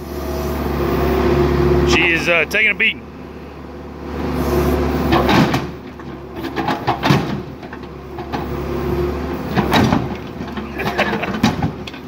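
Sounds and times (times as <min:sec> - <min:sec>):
diesel engine running: 0:00.0 - 0:12.0
metallic bangs and crunches: 0:05.1 - 0:08.5, 0:09.5 - 0:12.0.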